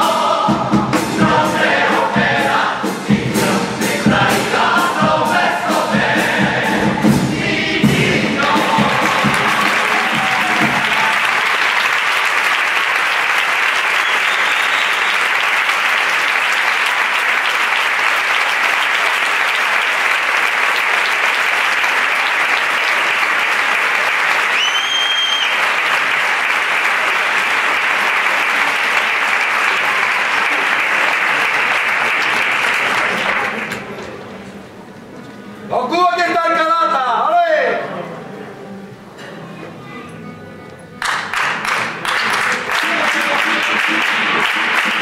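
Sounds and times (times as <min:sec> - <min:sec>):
audience applauding: 0:08.4 - 0:34.0, 0:41.0 - 0:45.0
short high whistle: 0:14.0 - 0:15.3, 0:24.5 - 0:25.6.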